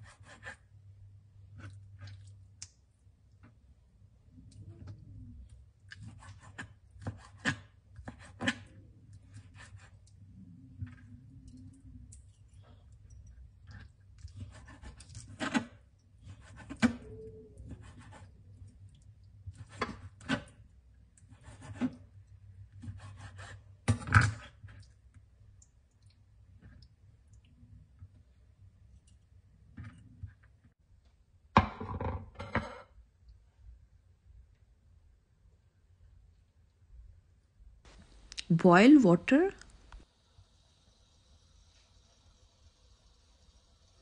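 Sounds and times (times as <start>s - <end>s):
faint low hum: 8.6s - 15.1s
knife slicing meat: 22.8s - 23.6s.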